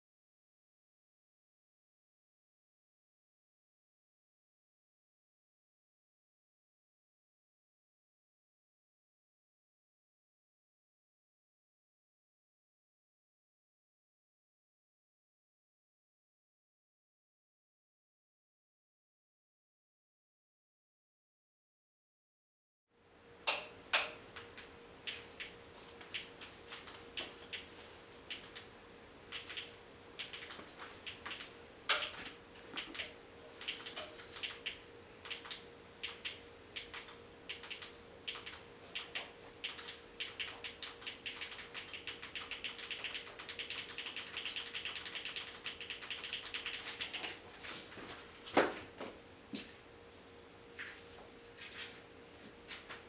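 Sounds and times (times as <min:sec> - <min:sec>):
faint steady hum: 0:23.0 - 0:53.0.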